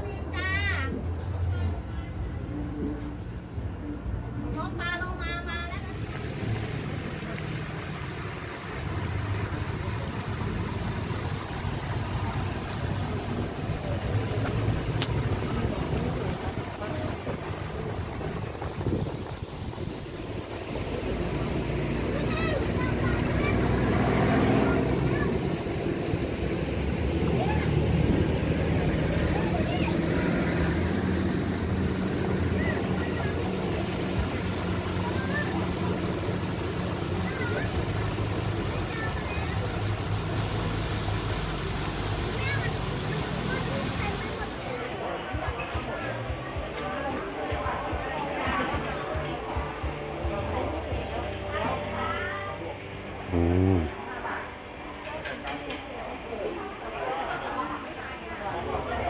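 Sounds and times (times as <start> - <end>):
engine humming steadily: 0.0 - 45.0, 46.0 - 54.9
pond aerator churning water: 5.5 - 45.1.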